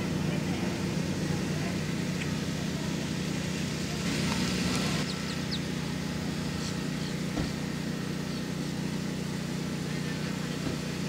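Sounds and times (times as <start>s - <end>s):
low mechanical hum: 0.0s - 11.0s
high bird chirps: 5.0s - 5.8s.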